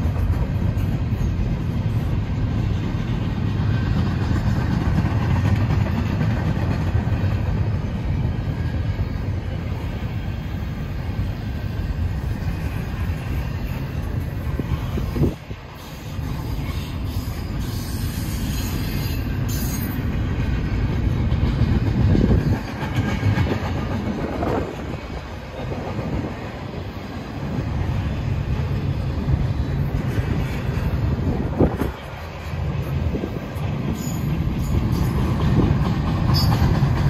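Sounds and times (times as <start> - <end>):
train wheels rumbling on rails: 0.0 - 37.0
wheel squeals: 36.2 - 37.0.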